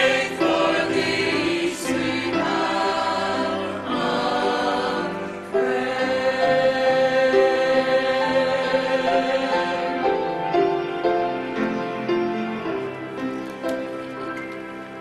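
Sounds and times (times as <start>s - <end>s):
church choir singing a hymn: 0.0s - 13.8s.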